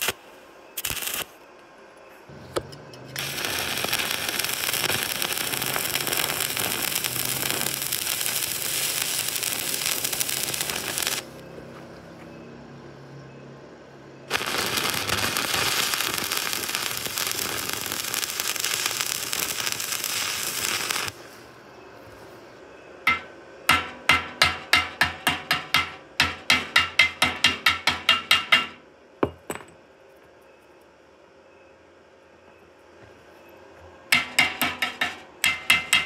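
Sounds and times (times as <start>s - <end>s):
arc welding crackling hiss: 0.0s - 1.4s, 3.1s - 11.4s, 14.3s - 22.4s
hammer striking metal: 23.1s - 29.8s, 34.1s - 36.0s.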